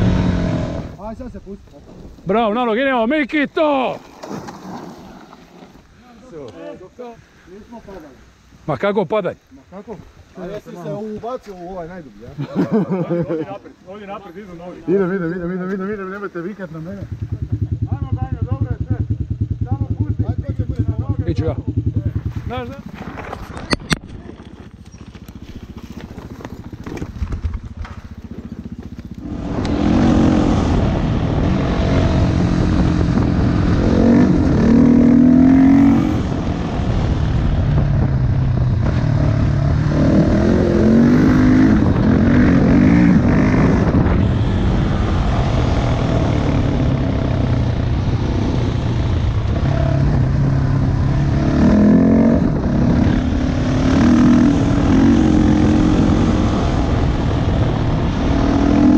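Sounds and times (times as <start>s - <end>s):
motorcycle engine revving: 0.0s - 1.2s, 14.9s - 58.9s
bike moving on gravel: 22.1s - 30.2s.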